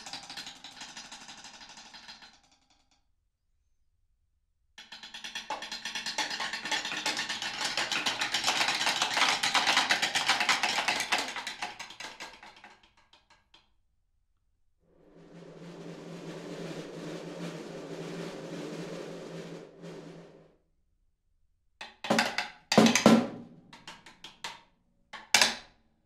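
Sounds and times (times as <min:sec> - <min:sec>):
snare drum ensemble playing: 0:15.2 - 0:20.5.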